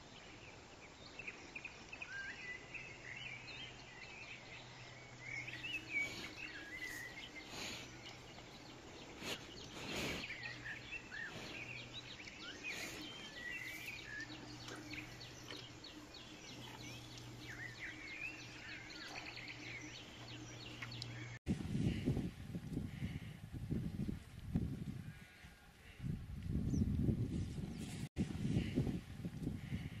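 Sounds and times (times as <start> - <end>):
birds chirping and singing: 1.6 - 23.3
steady low hum: 3.4 - 23.8.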